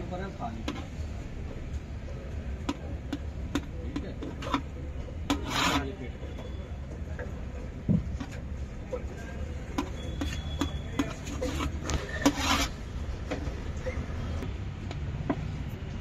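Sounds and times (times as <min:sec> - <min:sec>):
knife tapping and scraping metal tray: 0:05.2 - 0:05.9, 0:09.8 - 0:12.8.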